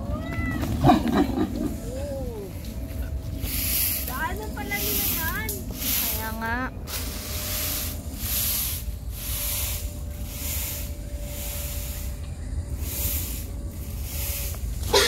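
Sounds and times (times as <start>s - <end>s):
low rumble on microphone: 0.0s - 15.0s
high insect-like hiss: 3.4s - 15.0s.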